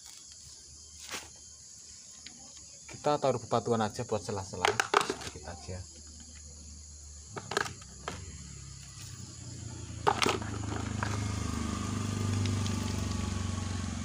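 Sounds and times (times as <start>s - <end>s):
stones knocking in plastic pot: 4.6s - 5.4s, 7.3s - 8.2s, 10.0s - 11.3s.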